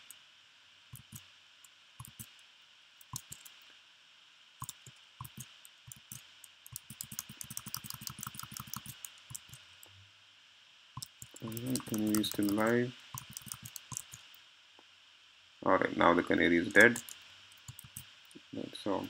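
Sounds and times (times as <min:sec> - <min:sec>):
faint hiss: 0:00.0 - 0:19.0
laptop clicks: 0:04.6 - 0:09.6, 0:11.0 - 0:14.2, 0:16.7 - 0:18.1.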